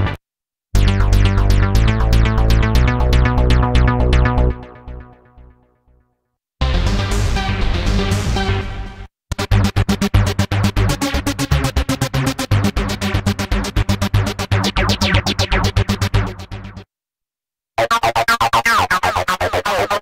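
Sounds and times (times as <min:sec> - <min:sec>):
pulsing synthesizer sequence: 0:09.4 - 0:16.9.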